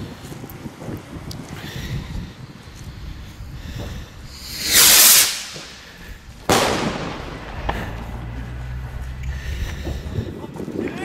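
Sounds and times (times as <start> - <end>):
firework rocket launching with hiss: 4.2 - 8.4
firework bursting with sharp bang: 4.3 - 8.4.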